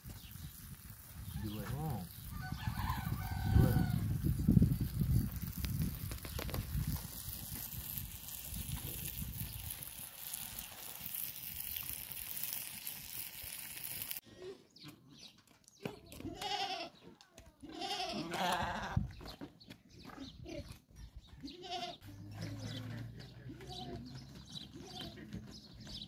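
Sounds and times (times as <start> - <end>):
steady hiss: 4.3 - 14.2
lambs bleating: 16.3 - 16.9, 17.6 - 19.0.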